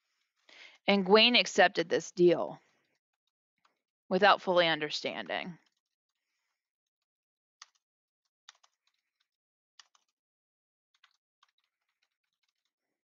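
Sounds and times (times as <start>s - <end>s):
faint keyboard typing: 7.6s - 7.9s, 8.5s - 10.2s, 10.9s - 12.8s.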